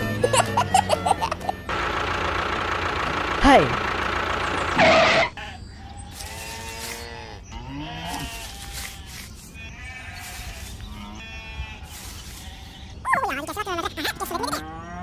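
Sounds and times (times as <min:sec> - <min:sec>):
sheep bleating: 0:04.8 - 0:13.2.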